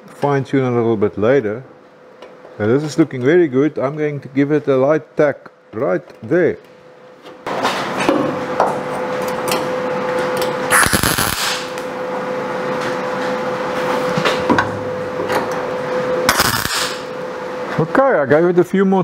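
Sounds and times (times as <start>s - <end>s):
steady hum: 0.0s - 19.0s
welder arc crackling: 10.7s - 11.9s, 16.3s - 17.1s
welding pops: 10.7s - 11.9s, 16.3s - 17.1s.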